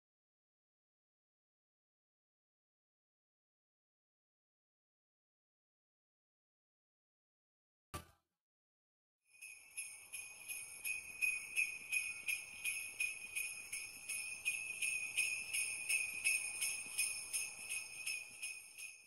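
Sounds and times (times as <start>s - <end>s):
jingle bells shaken: 9.3s - 19.0s.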